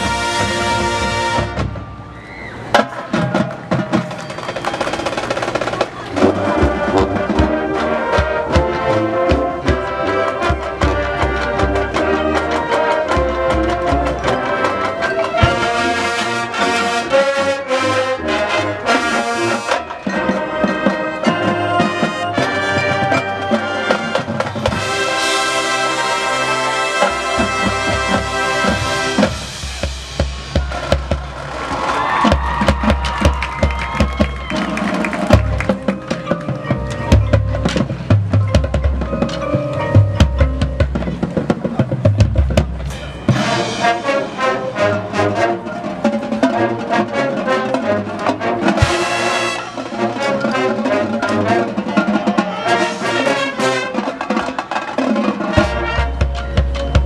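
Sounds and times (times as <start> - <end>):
brass chords: 0.0 - 1.9, 6.1 - 31.6, 34.5 - 57.0
drums and percussion: 0.0 - 57.0
marching band playing: 0.0 - 57.0.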